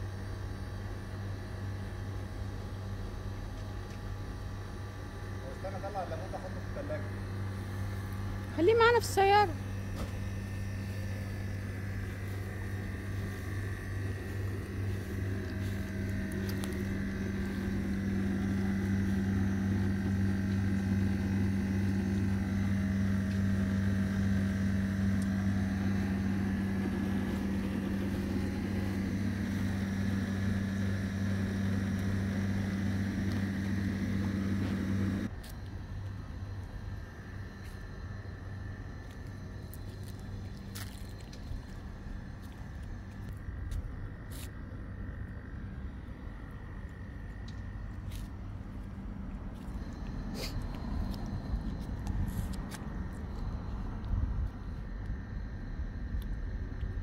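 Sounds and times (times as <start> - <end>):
machine motor humming: 6.4 - 36.7.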